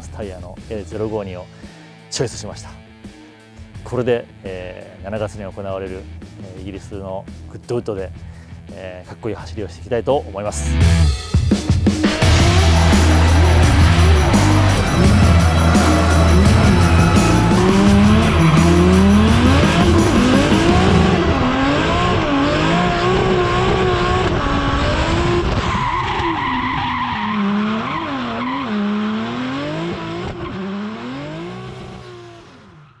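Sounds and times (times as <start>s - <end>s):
car engine revving: 12.0s - 32.8s
tyre squeal: 12.3s - 20.7s.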